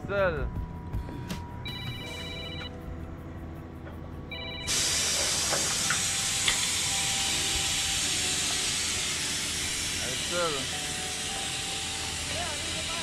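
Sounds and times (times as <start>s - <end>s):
compressed air hissing: 4.6s - 13.0s.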